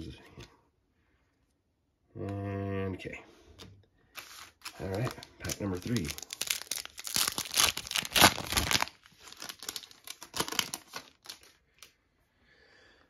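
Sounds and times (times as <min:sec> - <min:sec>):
card pack wrapper tearing and crinkling: 0:04.2 - 0:11.6.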